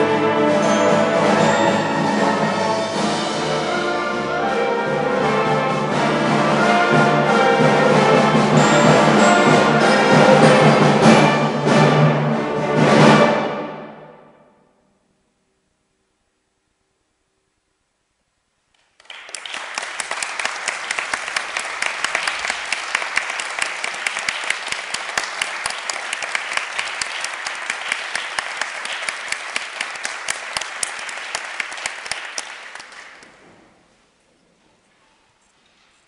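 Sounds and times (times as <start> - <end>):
audience applause: 19.0 - 33.4.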